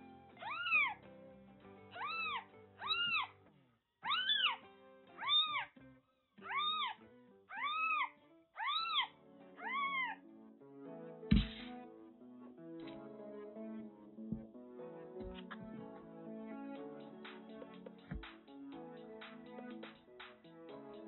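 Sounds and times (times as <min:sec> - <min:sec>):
soft background music: 0:00.0 - 0:21.0
kitten mewing: 0:02.0 - 0:03.3, 0:04.1 - 0:04.6
short thump: 0:11.3 - 0:11.7.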